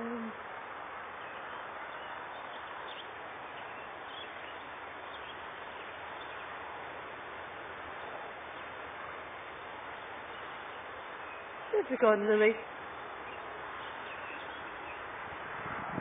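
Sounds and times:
outdoor background noise: 0.0 - 16.0
swallows chirping: 9.9 - 15.1.

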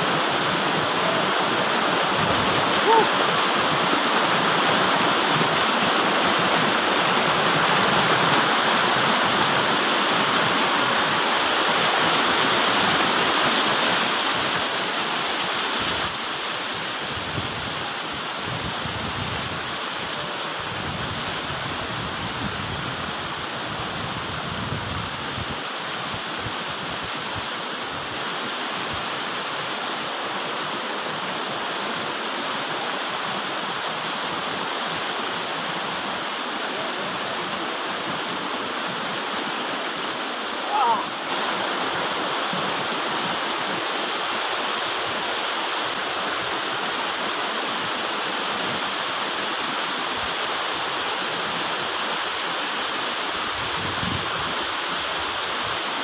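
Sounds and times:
waterfall pouring into pool: 0.0 - 56.0.

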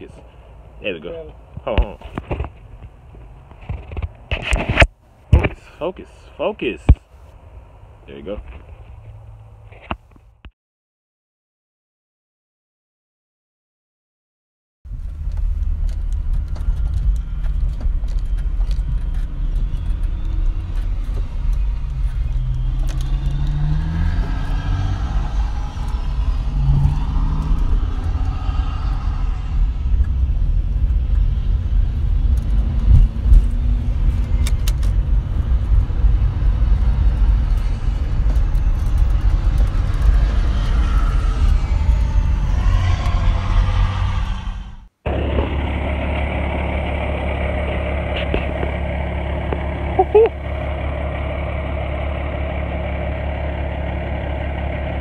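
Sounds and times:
car cabin road rumble: 0.0 - 10.5, 14.9 - 55.0
engine note rising: 18.8 - 55.0.

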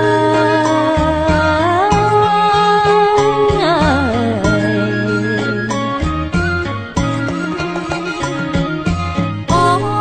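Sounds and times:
pulsing bass line: 3.0 - 10.0.

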